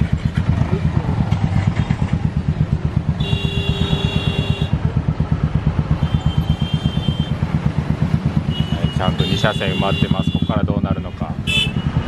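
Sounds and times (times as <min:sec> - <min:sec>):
engine throbbing: 0:00.0 - 0:12.0
motorcycles idling: 0:00.0 - 0:12.0
vehicle horn: 0:03.2 - 0:04.8, 0:06.0 - 0:07.4, 0:08.5 - 0:12.0.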